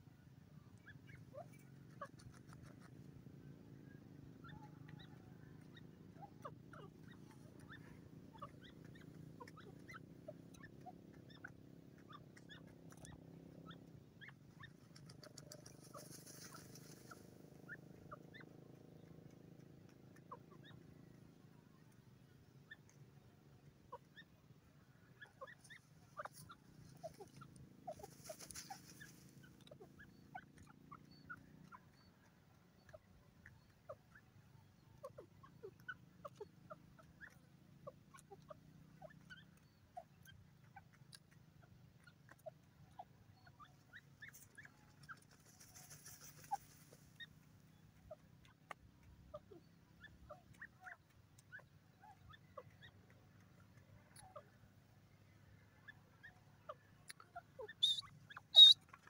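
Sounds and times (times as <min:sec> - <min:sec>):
bird peeping: 0:00.0 - 0:59.0.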